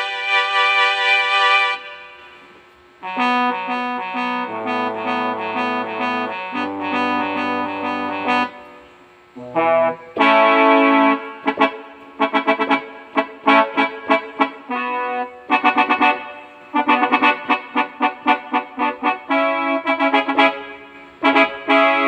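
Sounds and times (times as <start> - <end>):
keyboard chords: 0.0 - 2.3, 3.0 - 22.0
low sustained bass notes: 3.5 - 8.6.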